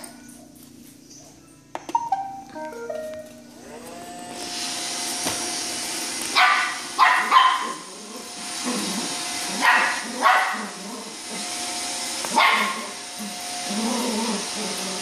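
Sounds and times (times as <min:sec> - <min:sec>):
robot vacuum whirring: 0:03.6 - 0:07.0, 0:07.6 - 0:15.0
puppy barking: 0:06.3 - 0:07.9, 0:09.5 - 0:10.8, 0:12.3 - 0:13.0.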